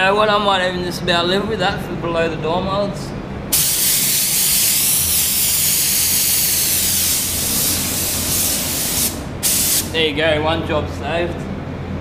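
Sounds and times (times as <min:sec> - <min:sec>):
paint spray gun hissing: 0:03.5 - 0:09.9.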